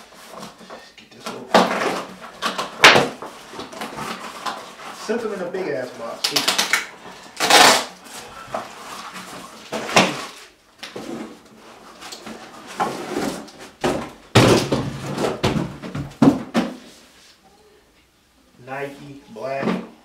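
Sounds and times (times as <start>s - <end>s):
cardboard box rustling and scraping: 8.1s - 13.8s.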